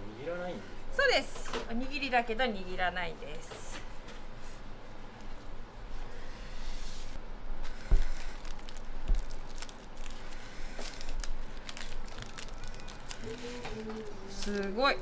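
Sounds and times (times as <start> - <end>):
seaweed sheet crinkling: 8.2 - 15.0.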